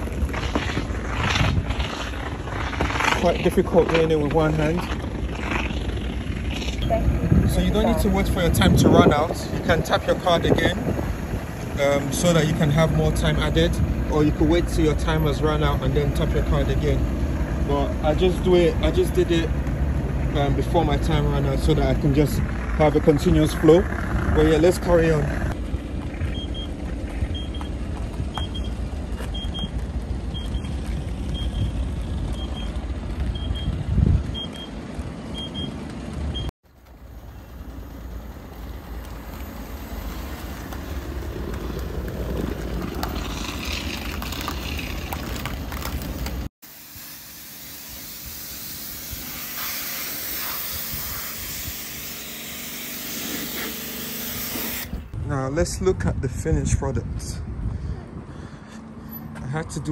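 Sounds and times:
pressure washer spraying water: 37.1 - 41.3, 46.6 - 55.1.

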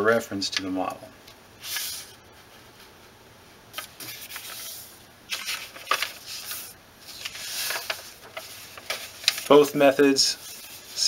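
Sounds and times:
paper rustling and crinkling: 3.7 - 11.0.

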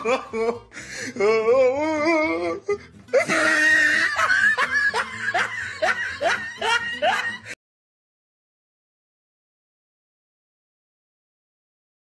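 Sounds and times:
high-pitched laughter: 0.0 - 0.7, 1.9 - 7.6.

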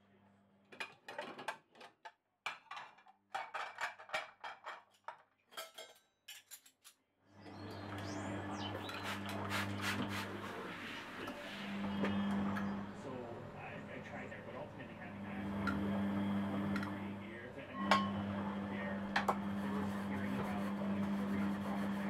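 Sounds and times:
steady noisy hum: 7.4 - 22.0
ceramic plates clinking: 17.8 - 18.2.

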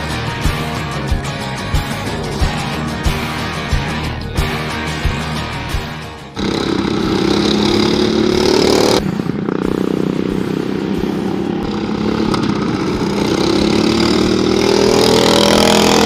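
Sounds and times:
lawnmower engine at high revs: 0.0 - 16.0.

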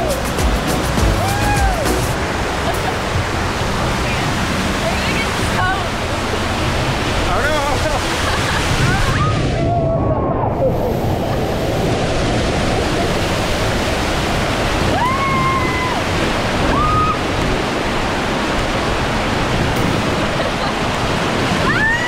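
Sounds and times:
water rushing down slide: 0.0 - 22.0.

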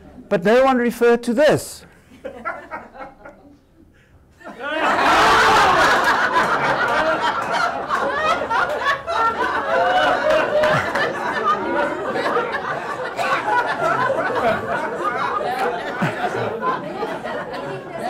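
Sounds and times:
audience laughing: 2.1 - 3.6, 4.4 - 18.0
chatter: 6.1 - 18.0.

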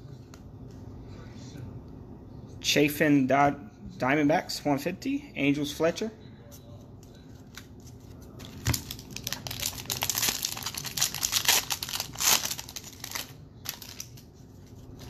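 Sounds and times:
foil wrapper crinkling: 8.4 - 15.0.

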